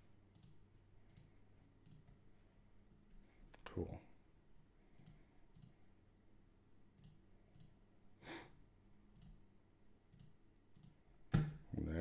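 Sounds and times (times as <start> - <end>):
computer mouse clicks: 0.3 - 2.1, 5.0 - 5.8, 7.0 - 7.8, 9.2 - 9.4, 10.1 - 11.0
short breath: 8.2 - 8.6.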